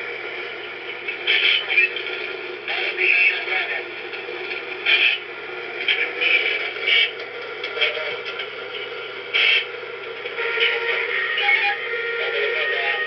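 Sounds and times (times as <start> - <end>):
crackly radio hiss: 0.0 - 13.0
short static bursts: 9.3 - 11.2.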